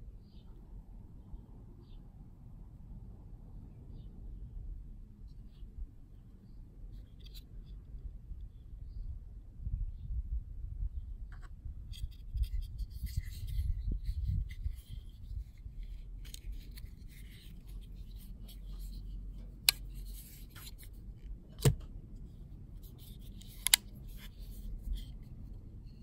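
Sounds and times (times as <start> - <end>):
folding knife clicking: 23.4 - 23.8.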